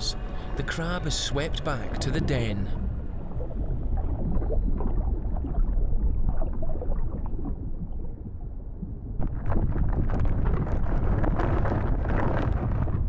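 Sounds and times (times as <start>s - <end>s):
underwater low rumble: 0.0s - 13.0s
faint clicks and crackles: 8.8s - 13.0s.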